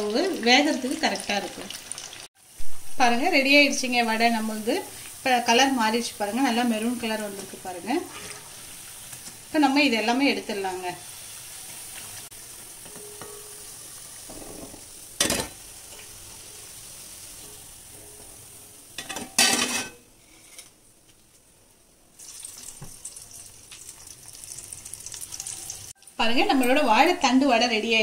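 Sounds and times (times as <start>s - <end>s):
food sizzling in hot oil: 0.0s - 20.6s, 22.2s - 28.0s
kitchen utensils clanking: 12.7s - 16.1s, 19.0s - 20.0s.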